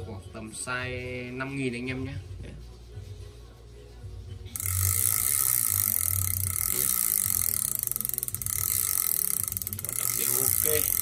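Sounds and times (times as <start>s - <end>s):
fishing reel whirring: 4.6s - 11.0s.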